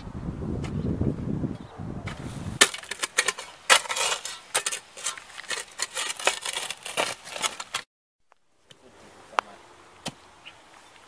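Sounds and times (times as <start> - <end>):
metal tool scraping stony soil: 2.1 - 7.9.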